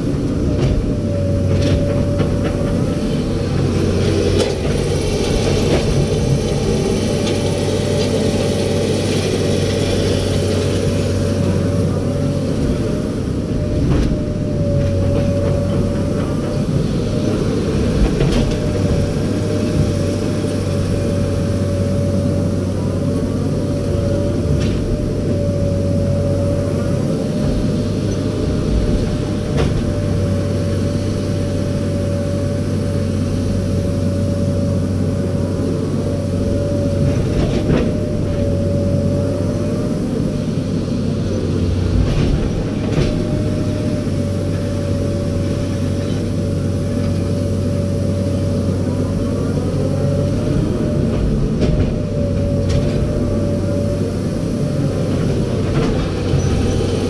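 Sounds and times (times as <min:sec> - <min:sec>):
diesel engine running: 0:00.0 - 0:57.0
high hydraulic whine: 0:00.0 - 0:57.0.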